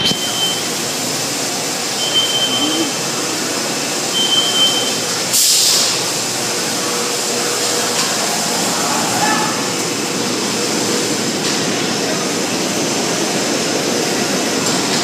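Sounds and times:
short high beep: 0:00.0 - 0:00.6, 0:02.0 - 0:03.0, 0:04.1 - 0:05.0
car wash water spray and machinery: 0:00.0 - 0:15.0
spray hiss burst: 0:05.0 - 0:06.2.

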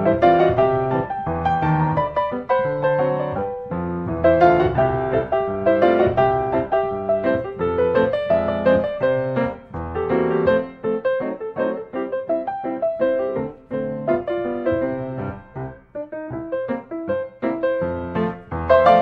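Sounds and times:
gentle piano music: 0:00.0 - 0:19.0.

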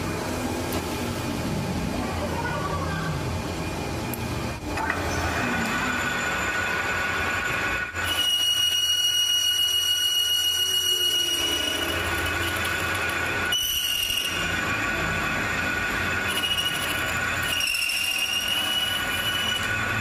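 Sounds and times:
metal lathe running: 0:03.3 - 0:20.0
high squeal of tool on metal: 0:05.6 - 0:20.0.

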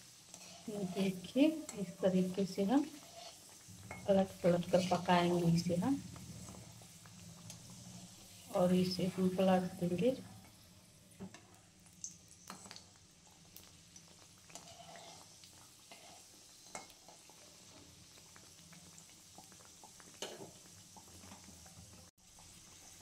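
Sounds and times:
food deep-frying in hot oil: 0:00.0 - 0:23.0.

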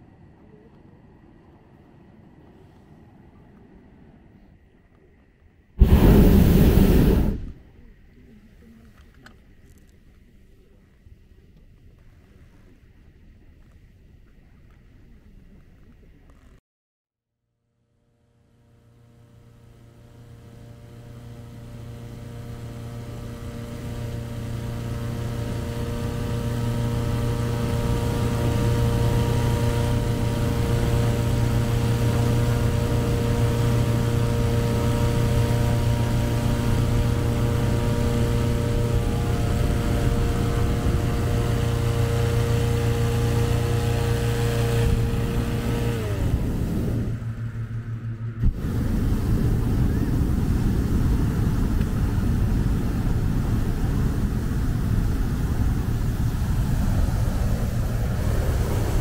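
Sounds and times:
vehicle engine running: 0:18.0 - 0:59.0.

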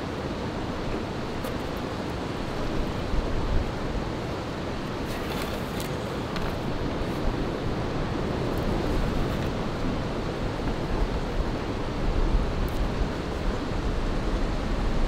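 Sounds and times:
cord rustling around poles: 0:05.0 - 0:07.3.

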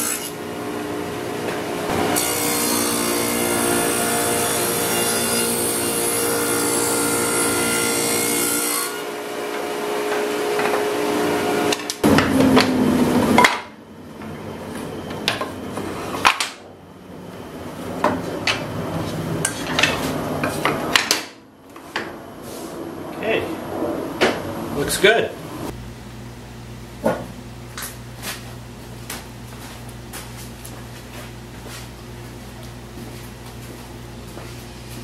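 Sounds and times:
table saw running: 0:01.9 - 0:13.3.

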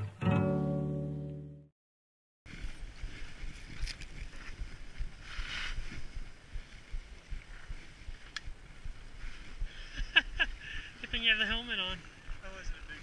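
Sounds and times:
skis hissing through snow: 0:02.5 - 0:10.0
wind buffeting microphone: 0:02.5 - 0:13.0.

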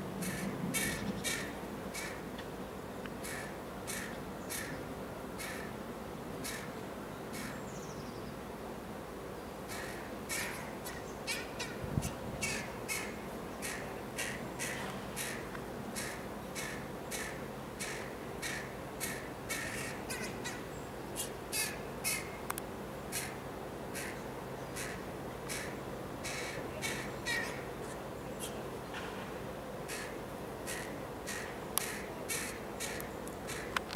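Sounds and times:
crow cawing harshly: 0:00.2 - 0:02.2, 0:03.2 - 0:04.8, 0:05.4 - 0:05.7, 0:06.4 - 0:06.7, 0:09.7 - 0:11.8, 0:12.4 - 0:20.6, 0:21.5 - 0:22.3, 0:23.1 - 0:24.2, 0:24.8 - 0:27.7, 0:29.9 - 0:33.8.

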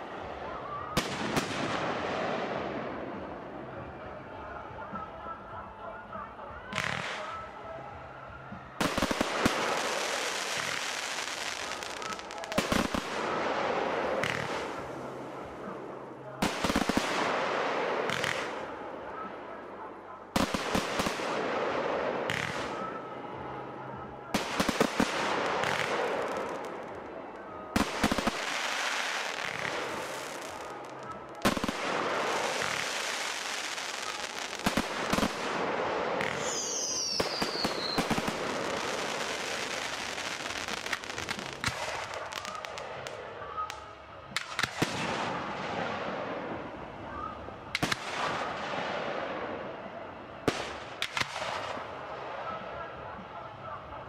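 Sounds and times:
firework crackling: 0:08.8 - 0:18.8, 0:24.3 - 0:46.1.

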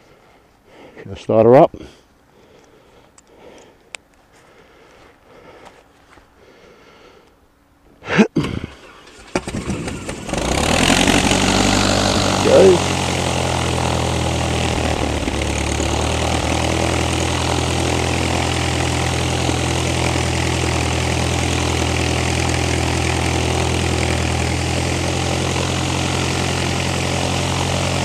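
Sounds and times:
aircraft piston engine idling: 0:08.9 - 0:28.0.

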